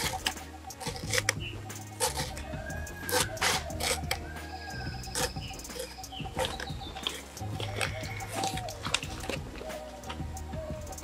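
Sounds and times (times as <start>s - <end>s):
knife making crunchy cuts: 0.0s - 9.4s
bird calling: 0.0s - 11.0s.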